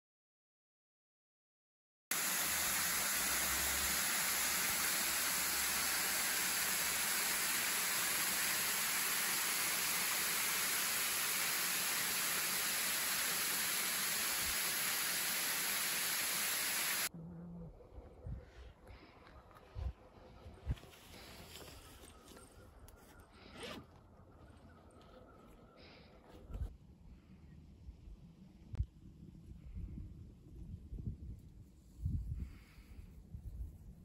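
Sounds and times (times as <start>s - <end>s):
waterfall rushing: 2.1s - 17.1s.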